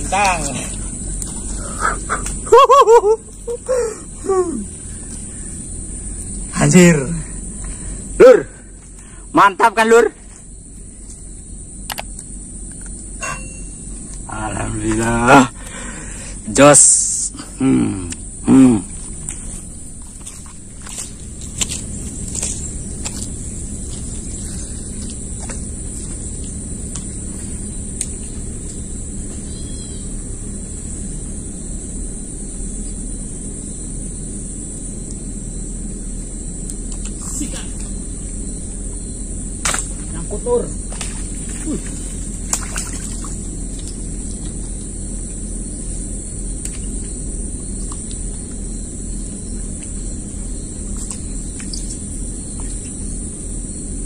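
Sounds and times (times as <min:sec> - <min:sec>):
high-pitched insect drone: 0:00.0 - 0:54.0
low rumble: 0:10.4 - 0:54.0.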